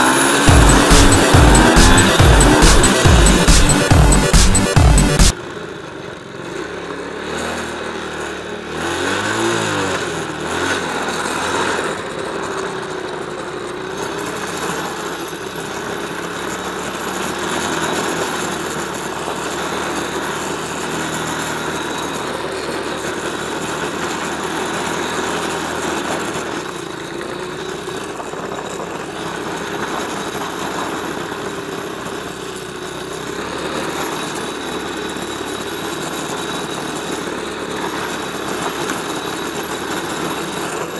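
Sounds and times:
constant rushing noise: 0:00.0 - 0:05.3
quad engine running: 0:00.0 - 0:40.9.

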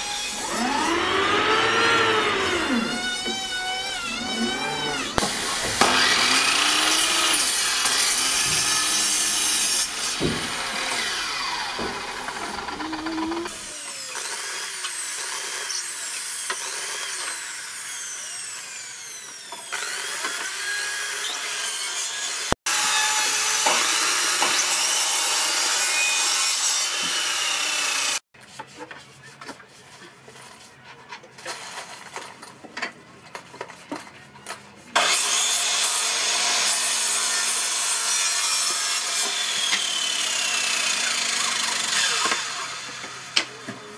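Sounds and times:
drill driving screws into wood: 0:00.0 - 0:15.8, 0:39.2 - 0:43.5
mitre saw cutting wood: 0:00.0 - 0:28.2, 0:35.0 - 0:43.9.

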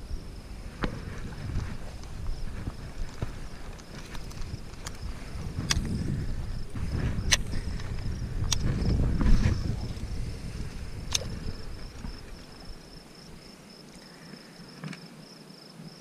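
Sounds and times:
wind buffeting microphone: 0:00.0 - 0:13.5
high insect trill: 0:00.0 - 0:16.0
sharp clicks: 0:03.0 - 0:06.1, 0:07.2 - 0:10.1, 0:11.0 - 0:12.2.

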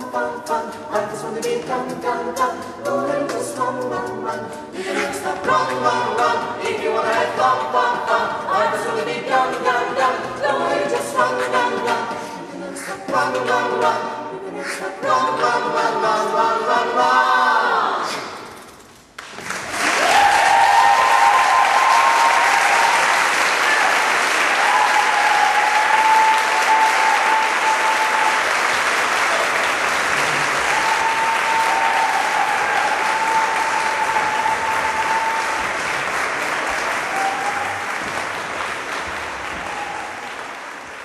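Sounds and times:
vocal group singing chord: 0:00.0 - 0:18.4
audience applause: 0:19.2 - 0:41.0.

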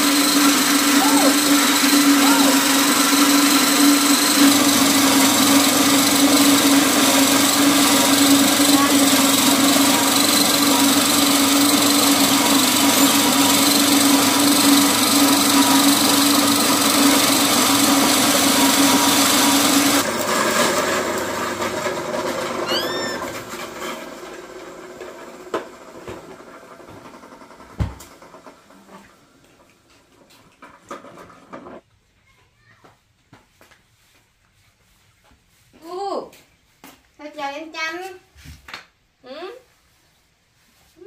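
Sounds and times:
electric grain mill grinding: 0:00.0 - 0:29.2.

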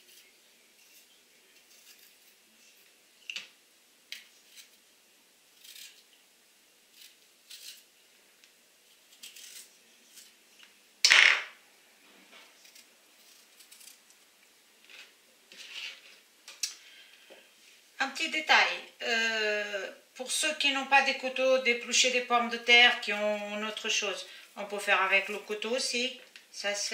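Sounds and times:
peeler shaving radish: 0:00.0 - 0:02.4, 0:05.6 - 0:06.0, 0:06.9 - 0:07.9, 0:09.0 - 0:10.4, 0:12.6 - 0:14.0.

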